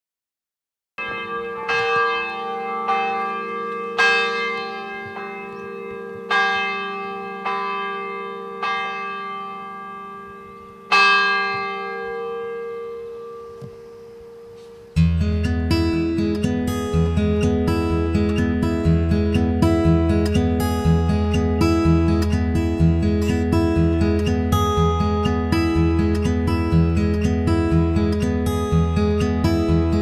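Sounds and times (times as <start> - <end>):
church bell ringing: 1.0 - 30.0.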